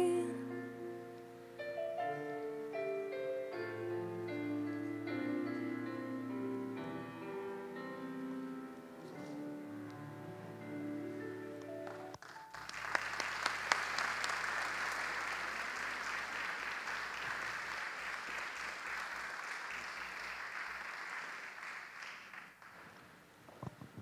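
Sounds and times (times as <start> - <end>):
audience applauding: 11.8 - 23.1.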